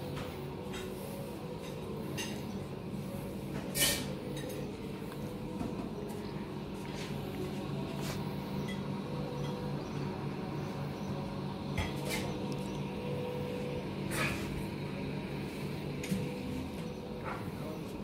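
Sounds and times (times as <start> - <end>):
steady low hum: 0.0 - 18.0
dishes and cutlery clinking: 1.6 - 2.6, 3.6 - 4.8.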